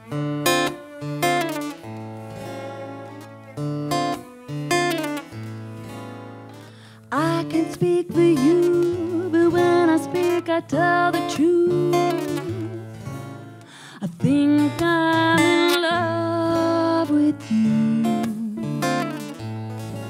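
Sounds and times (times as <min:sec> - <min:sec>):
cello: 0:00.0 - 0:20.0
strummed acoustic guitar: 0:00.0 - 0:20.0
woman singing: 0:07.1 - 0:19.3.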